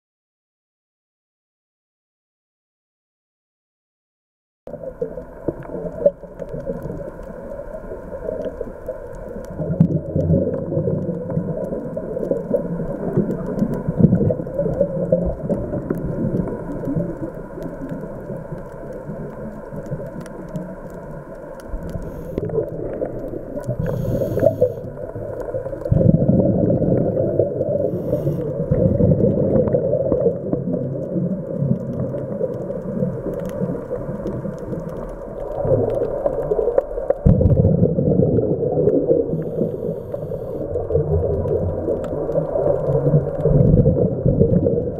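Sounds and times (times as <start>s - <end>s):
exhaled bubbles rumbling: 4.7s - 44.9s
diver breathing through regulator: 23.5s - 25.2s, 27.6s - 28.8s, 39.3s - 40.8s.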